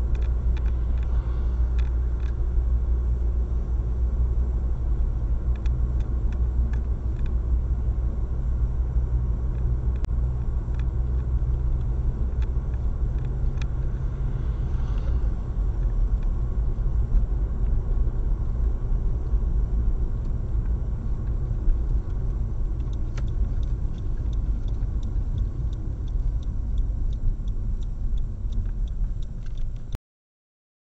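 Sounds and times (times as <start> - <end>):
faint clicks: 0.0 - 2.4, 20.2 - 30.0
engine and tyre rumble: 0.0 - 30.0.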